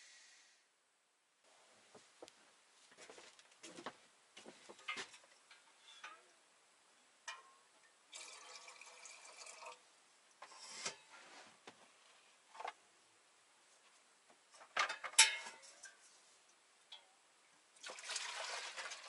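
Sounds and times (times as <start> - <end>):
pots clicking and knocking: 3.6 - 6.4, 7.2 - 9.8, 14.5 - 16.1
water pouring into container: 8.1 - 9.8, 17.8 - 19.0.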